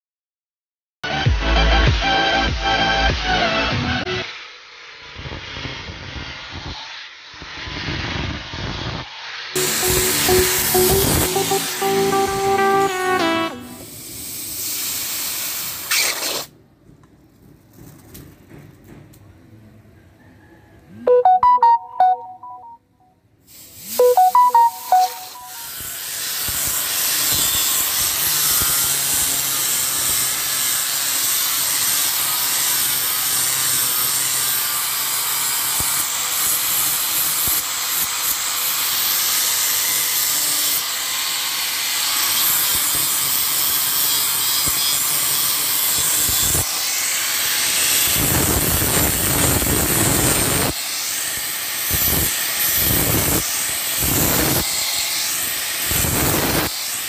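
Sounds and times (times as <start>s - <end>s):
short ringing tones: 24.0s - 25.8s.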